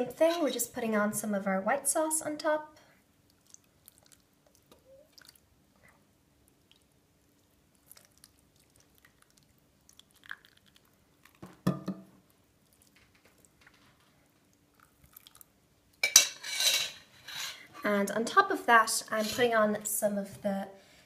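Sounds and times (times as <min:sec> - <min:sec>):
saucepan knock on dish: 0:11.6 - 0:12.1.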